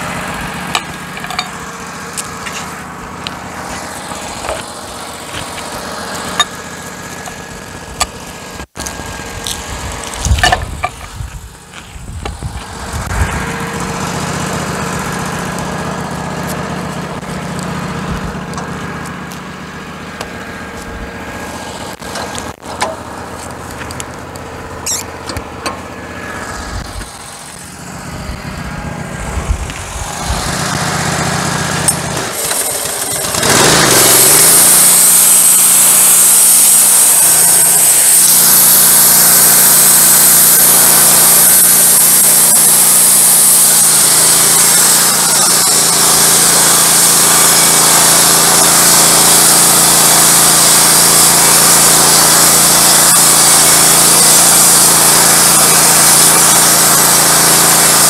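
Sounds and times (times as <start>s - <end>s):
sawmill engine revving: 0.0s - 58.0s
band blade hissing: 24.8s - 25.2s, 29.9s - 58.0s.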